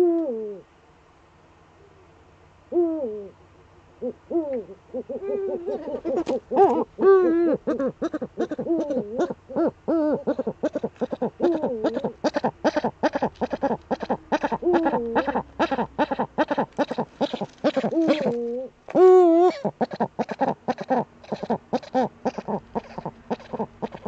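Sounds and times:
owl cackling: 4.0 - 24.0
owl scratching in nest: 12.2 - 15.8, 16.5 - 18.4.

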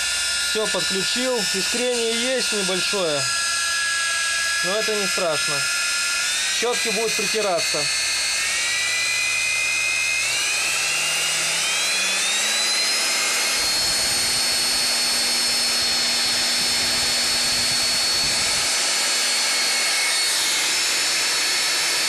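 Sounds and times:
vacuum cleaner motor whine: 0.0 - 22.0.

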